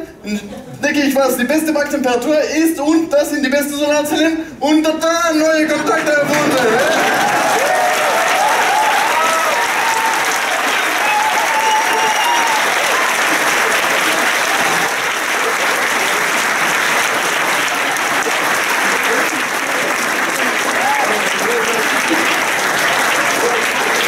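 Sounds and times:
audience applauding: 5.7s - 24.0s
people cheering: 5.7s - 24.0s.

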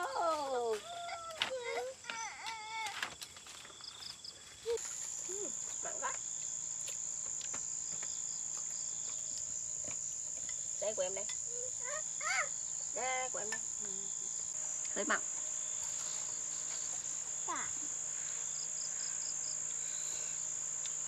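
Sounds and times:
small child's voice: 0.0s - 3.1s, 11.5s - 12.6s, 17.4s - 17.9s
insects trilling: 0.0s - 21.0s.

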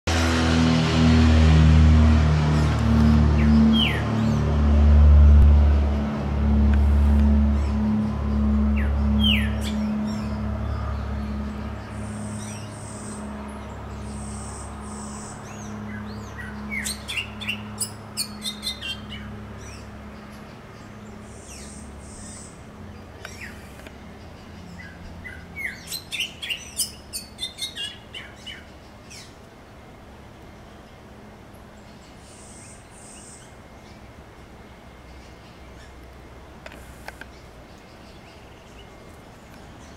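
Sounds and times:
steady low hum: 0.1s - 39.9s
bird singing sliding notes: 2.5s - 5.7s.

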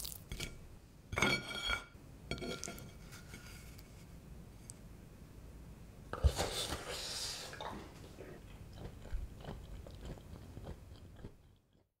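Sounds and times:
chewing with small crunches: 7.6s - 11.9s.

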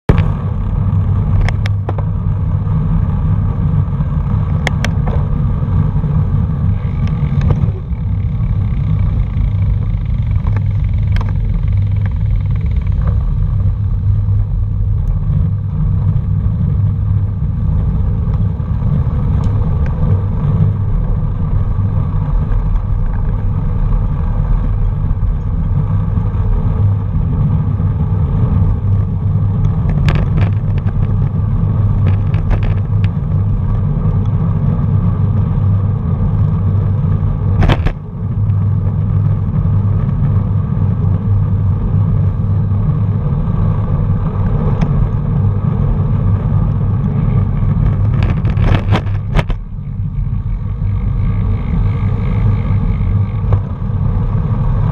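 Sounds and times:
road noise: 0.0s - 54.9s
wind rumble: 0.1s - 54.9s.

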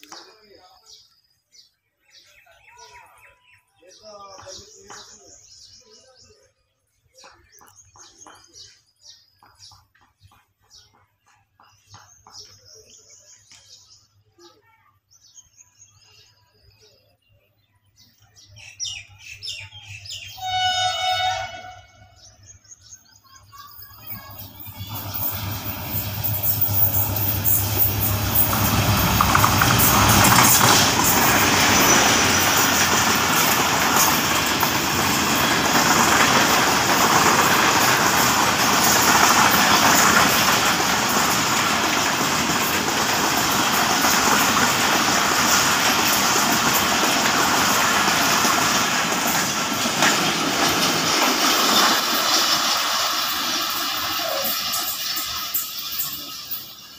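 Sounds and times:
diesel locomotive engine: 18.1s - 56.9s
train wheels clattering on rails: 23.4s - 56.9s.

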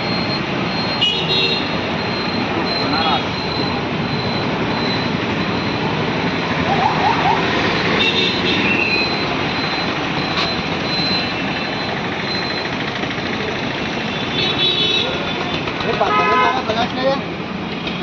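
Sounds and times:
roadside traffic: 0.0s - 18.0s
faint high beep: 2.0s - 6.0s, 8.7s - 12.8s.

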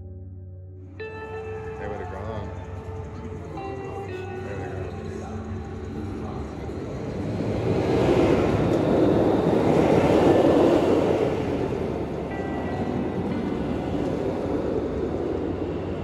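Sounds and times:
roller coaster rumbling on track: 1.0s - 16.0s.

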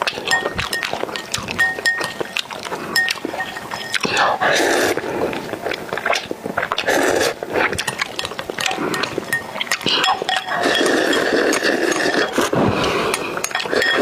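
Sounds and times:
chopsticks clinking on glass bowl: 0.0s - 4.3s, 7.8s - 12.5s, 13.1s - 14.0s
slurping noodles: 0.0s - 14.0s
long slurp of sauce: 4.0s - 7.8s, 9.8s - 14.0s.

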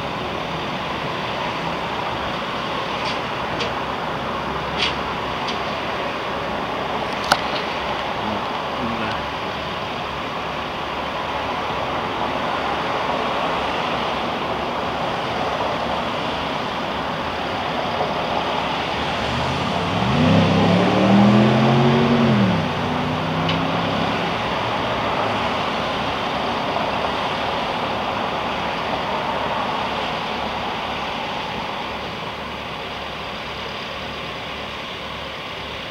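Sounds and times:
steady rushing background noise: 0.0s - 35.9s
car passing by: 11.6s - 31.8s.

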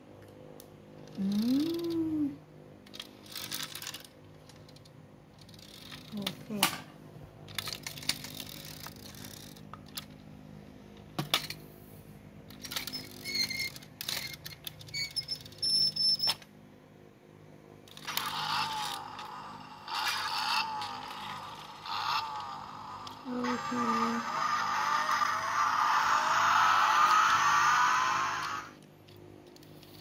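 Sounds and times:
toy wheels rattling and rolling: 1.0s - 2.0s, 2.9s - 6.6s, 7.5s - 10.2s, 12.5s - 16.2s, 17.9s - 28.7s, 29.4s - 30.0s.

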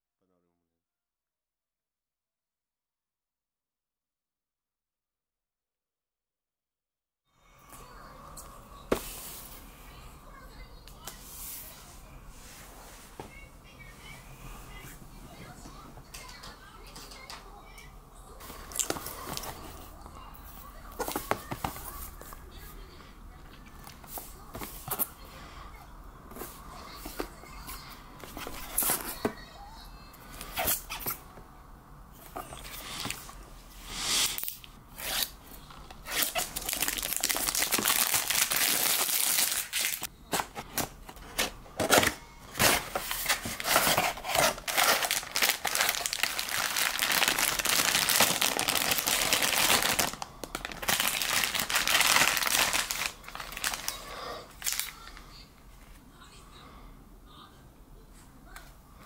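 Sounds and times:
plastic crinkling and tearing: 18.5s - 19.8s, 34.3s - 55.2s.

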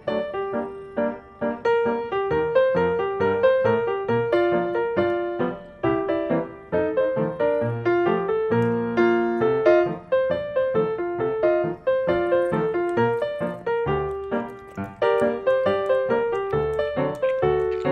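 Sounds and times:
solo piano music: 0.0s - 17.9s.

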